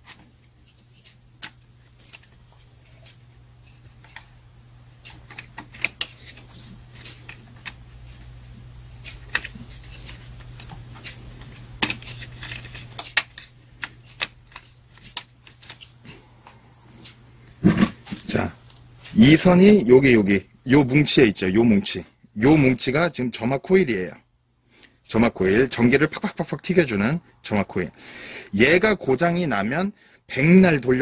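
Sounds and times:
steady low hum: 0:00.0 - 0:31.0
plastic parts clicking and rattling: 0:09.0 - 0:15.9.

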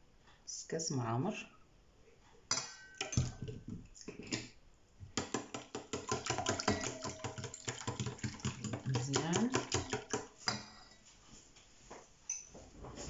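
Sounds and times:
whisk ticking against metal bowl: 0:05.2 - 0:10.7.

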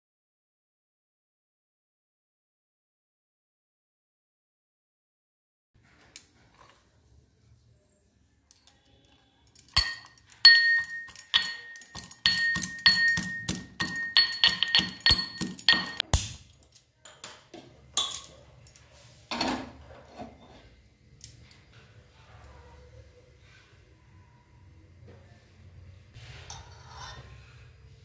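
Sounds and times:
metal pestle pounding in a mortar: 0:09.8 - 0:16.3.

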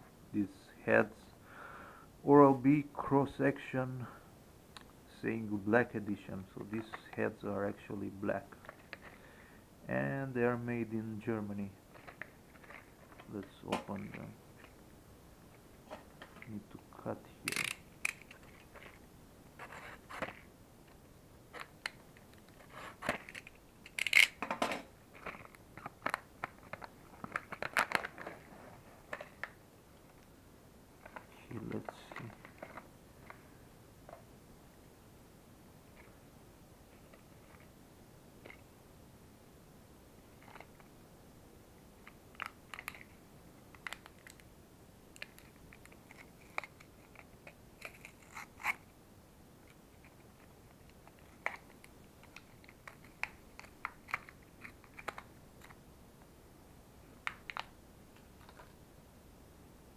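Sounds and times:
packaging clicks and crinkling: 0:11.9 - 0:14.8, 0:17.4 - 0:19.0, 0:21.5 - 0:30.3, 0:31.0 - 0:33.4, 0:42.0 - 0:44.5, 0:45.1 - 0:48.8, 0:49.7 - 0:55.8, 0:57.2 - 0:58.8
packaging crinkling: 0:25.1 - 0:29.6.

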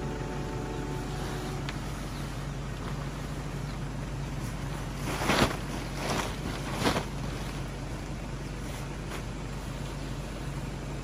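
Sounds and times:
steady background noise: 0:00.0 - 0:11.0
tent fabric swishing and flapping: 0:04.4 - 0:10.0.

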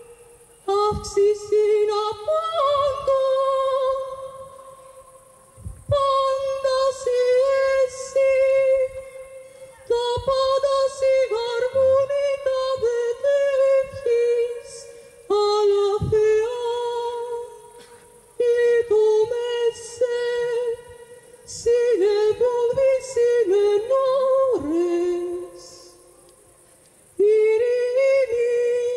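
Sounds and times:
woman singing: 0:00.0 - 0:05.1, 0:05.8 - 0:17.8, 0:18.4 - 0:26.1, 0:27.2 - 0:28.9
singer breathing: 0:09.4 - 0:09.8.

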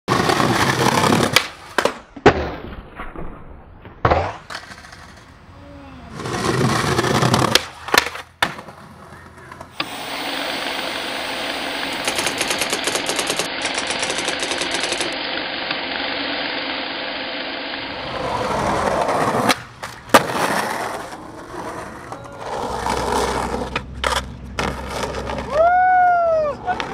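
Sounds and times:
skateboard tail popping and landing: 0:00.1 - 0:05.3, 0:06.2 - 0:10.0, 0:17.9 - 0:25.5
skateboard wheels rolling on concrete: 0:00.1 - 0:26.9.

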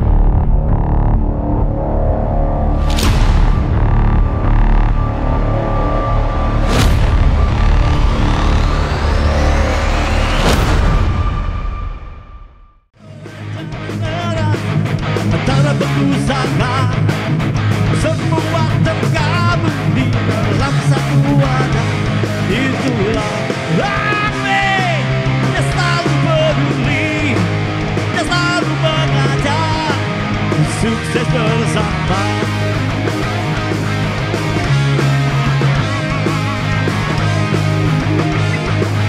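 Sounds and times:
bass line: 0:00.0 - 0:39.0
drums: 0:00.0 - 0:39.0
electric guitar: 0:13.0 - 0:39.0.

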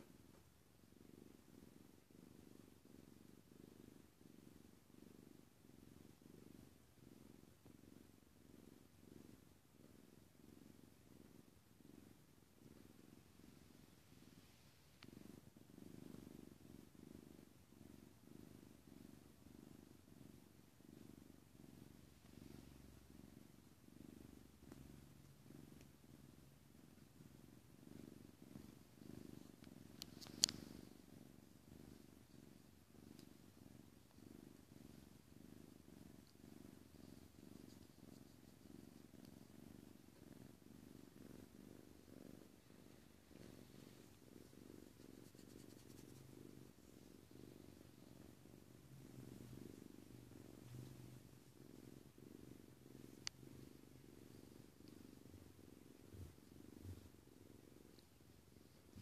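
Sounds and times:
cat purring: 0:00.0 - 0:59.0.

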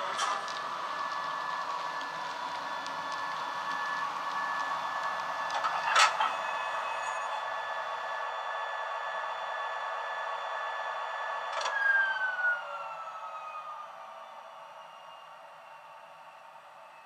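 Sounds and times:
steady electrical whine: 0:00.0 - 0:17.0.

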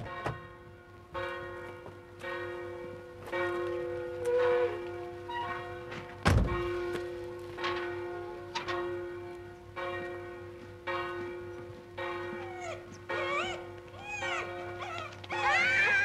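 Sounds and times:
dog whining: 0:12.4 - 0:16.0.

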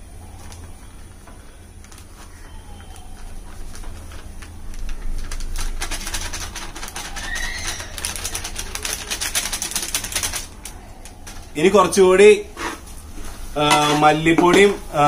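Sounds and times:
metal spatula scraping a pot: 0:12.6 - 0:14.9.

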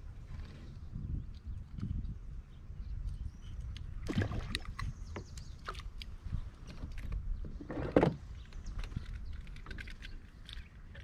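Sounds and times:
water splashing: 0:04.0 - 0:04.9.

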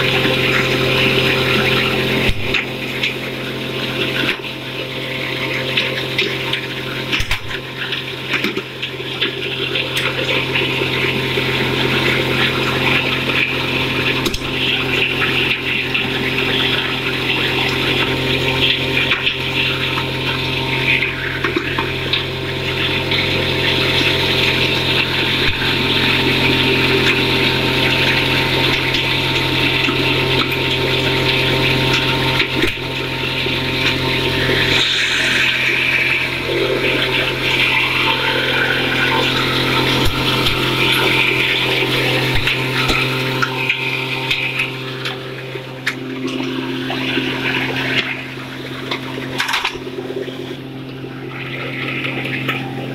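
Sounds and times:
motor hum: 0:00.0 - 0:52.9.

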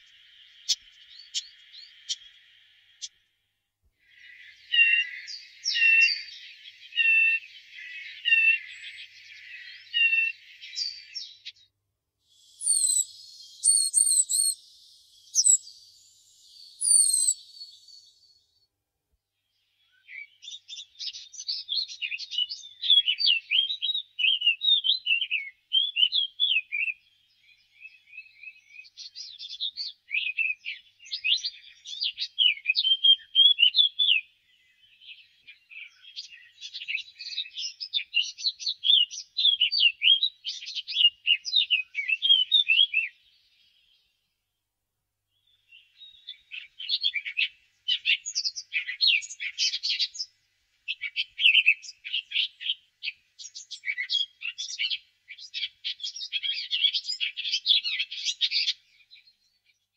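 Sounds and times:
bird warbling song: 0:00.0 - 0:03.4, 0:04.0 - 0:11.7, 0:12.3 - 0:18.6, 0:19.4 - 0:44.1, 0:45.4 - 0:59.9.

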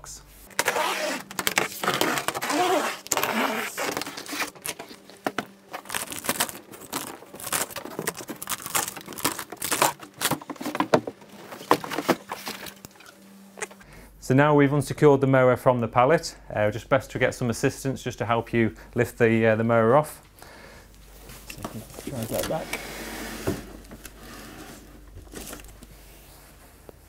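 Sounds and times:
cardboard packaging rustling: 0:00.5 - 0:13.5, 0:23.7 - 0:26.6.

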